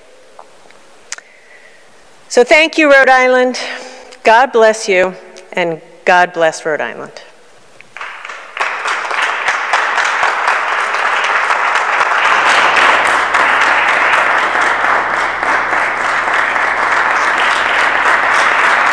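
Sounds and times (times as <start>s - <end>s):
audience applauding: 7.9s - 18.9s.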